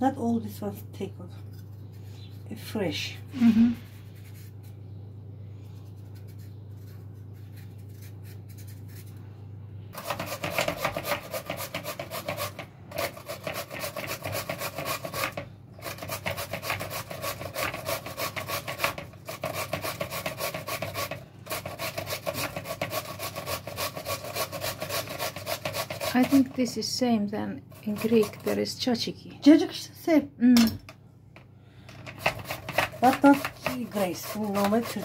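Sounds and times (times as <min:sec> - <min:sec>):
low steady hum: 0:00.0 - 0:35.0
cucumber grating rasps: 0:10.0 - 0:26.7, 0:27.7 - 0:28.7, 0:32.0 - 0:35.0.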